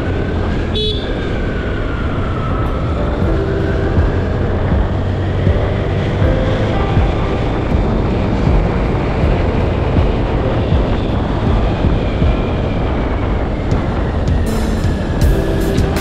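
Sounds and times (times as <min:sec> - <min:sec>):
road noise: 0:00.0 - 0:16.0
wind buffeting microphone: 0:00.0 - 0:16.0.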